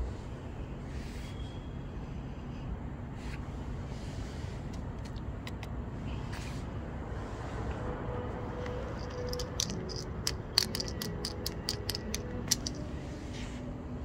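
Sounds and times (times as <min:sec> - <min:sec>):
urban background rumble: 0:00.0 - 0:14.0
sharp light clicks and taps: 0:08.7 - 0:12.8.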